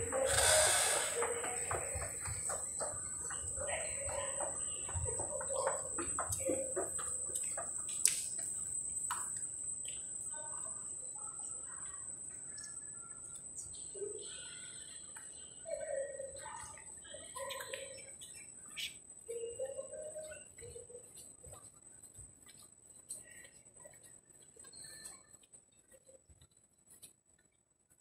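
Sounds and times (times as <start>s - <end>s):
faint distant voices: 0.0s - 8.8s, 9.8s - 22.3s
steady high-pitched whine: 0.0s - 27.2s.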